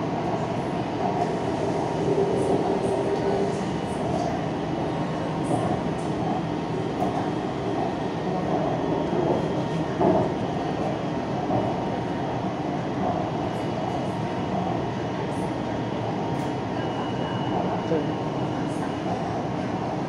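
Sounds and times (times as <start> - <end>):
train running on track: 0.0 - 20.0.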